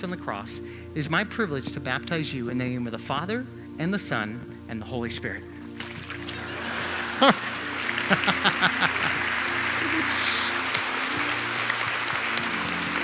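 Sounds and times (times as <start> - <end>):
background music: 0.0 - 13.0
crowd applauding and cheering: 6.0 - 13.0.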